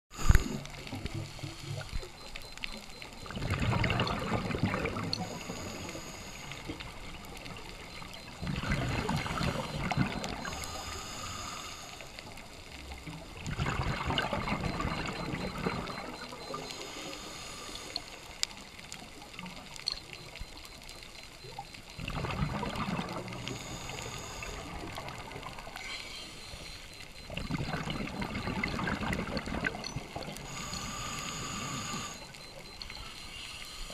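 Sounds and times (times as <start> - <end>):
quiet bubbly hiss: 0.1 - 33.9.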